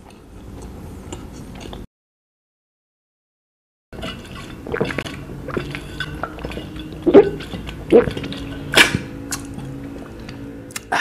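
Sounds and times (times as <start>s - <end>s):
loud gulps: 4.7s - 5.6s, 7.0s - 8.2s.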